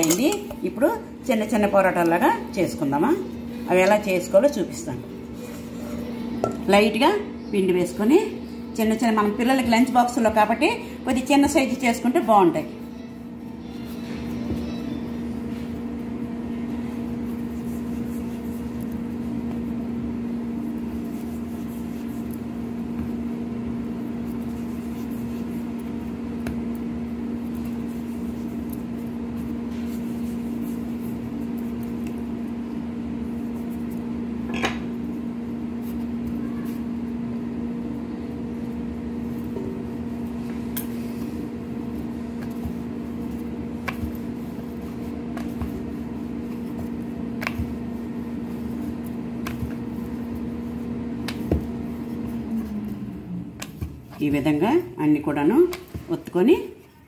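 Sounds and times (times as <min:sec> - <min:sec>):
steady machine hum: 0:00.0 - 0:57.0.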